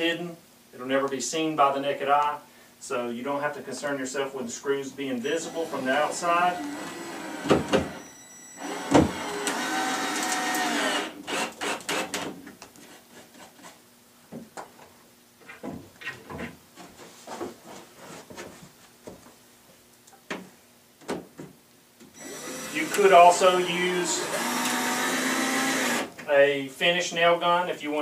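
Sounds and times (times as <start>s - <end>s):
power drill motor whining: 5.4s - 12.2s, 22.2s - 26.1s.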